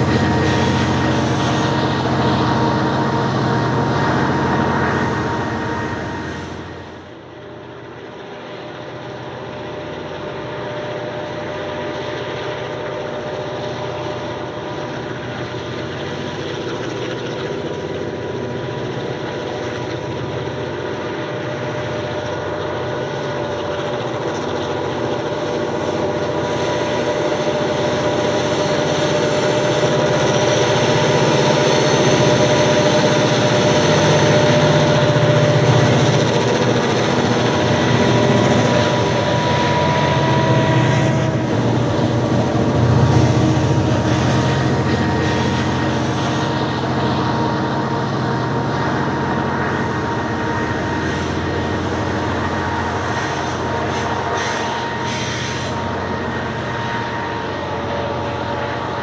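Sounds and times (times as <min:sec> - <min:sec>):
diesel locomotive engines humming: 0:00.0 - 0:59.0
train wagons rolling on rails: 0:00.0 - 0:59.0.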